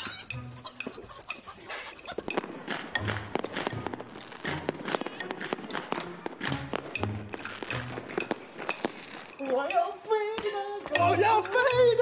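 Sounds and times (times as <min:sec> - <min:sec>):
chicken clucking: 0:00.0 - 0:02.4
sharp clicks and crackles: 0:00.2 - 0:12.0.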